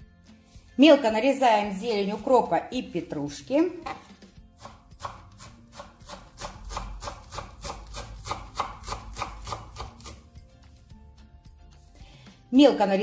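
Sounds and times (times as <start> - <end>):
knife chopping on wooden board: 3.7 - 10.3.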